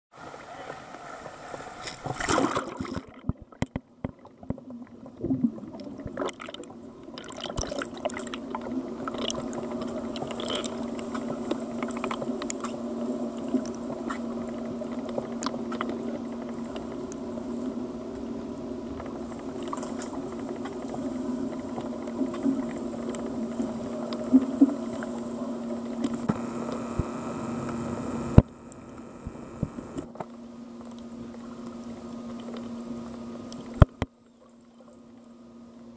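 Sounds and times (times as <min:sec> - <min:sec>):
steady underwater hum: 0:00.1 - 0:35.9
water splashes: 0:00.2 - 0:17.7
held tones: 0:26.1 - 0:30.1.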